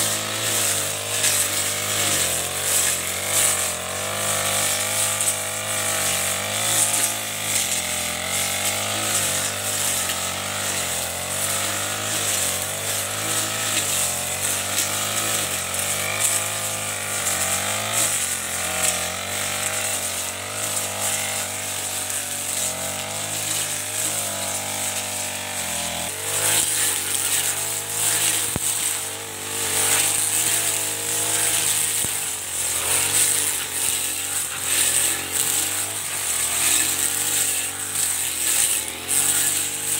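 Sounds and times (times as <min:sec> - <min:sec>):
brush cutter engine running: 0:00.0 - 0:39.9
cutting head slashing grass: 0:00.0 - 0:39.9.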